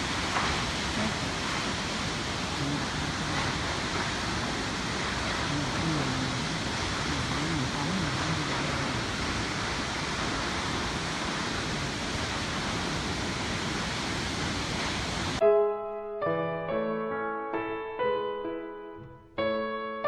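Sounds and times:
loud waterfall rushing: 0:00.0 - 0:15.4
faint voices: 0:05.4 - 0:09.1.

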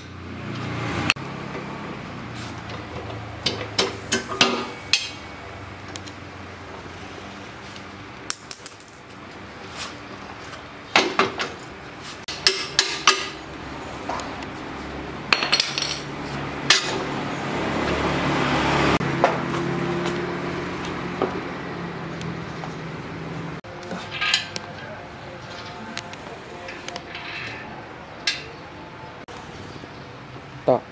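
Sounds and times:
metal parts and tools clanking: 0:08.3 - 0:09.2, 0:15.3 - 0:17.1, 0:23.9 - 0:24.9, 0:26.6 - 0:28.5.

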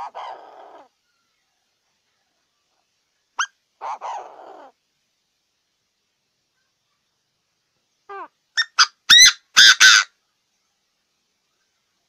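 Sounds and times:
francolin calling: 0:03.4 - 0:04.8, 0:08.0 - 0:10.1.

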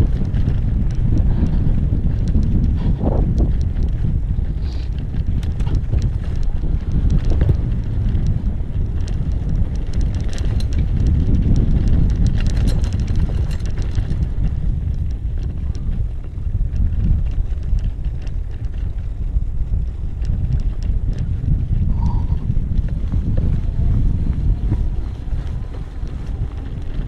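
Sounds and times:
bike clicks and rattles: 0:00.0 - 0:27.0
wind buffeting microphone: 0:00.0 - 0:27.0.

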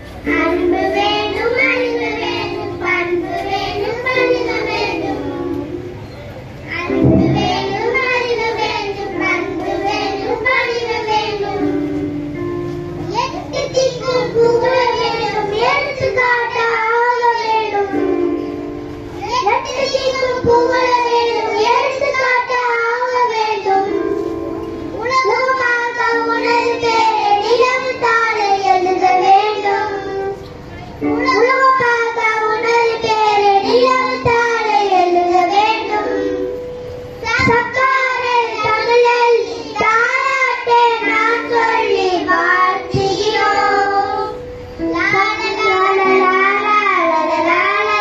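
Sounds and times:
children singing in chorus: 0:00.1 - 0:06.1, 0:06.7 - 0:12.5, 0:13.1 - 0:24.3, 0:25.0 - 0:48.0.

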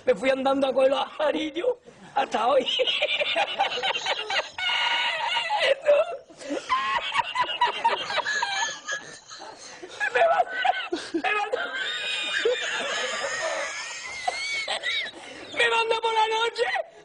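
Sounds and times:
man laughing: 0:02.6 - 0:15.6.

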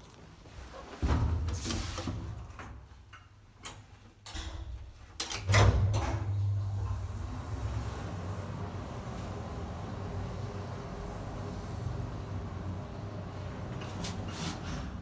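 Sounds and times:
elevator controls and doors clicking: 0:01.1 - 0:15.0
elevator hoist machine hum: 0:05.4 - 0:15.0.

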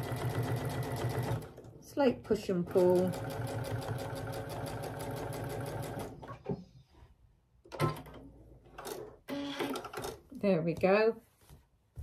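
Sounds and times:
sewing machine stitching: 0:00.0 - 0:01.8, 0:02.5 - 0:06.3, 0:07.7 - 0:10.3.

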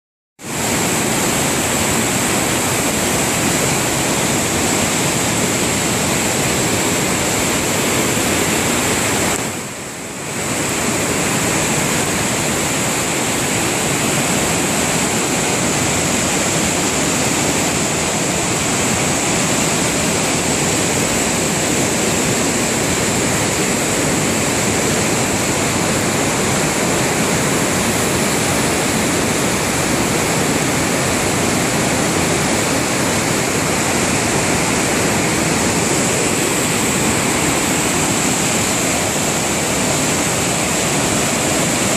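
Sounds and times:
white water rushing over rocks: 0:00.4 - 0:41.9.

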